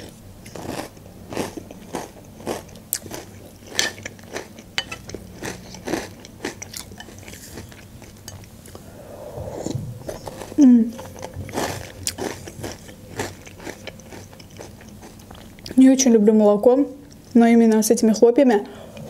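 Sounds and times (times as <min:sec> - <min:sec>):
chewing crunchy cereal: 0:00.4 - 0:08.5, 0:10.2 - 0:15.8.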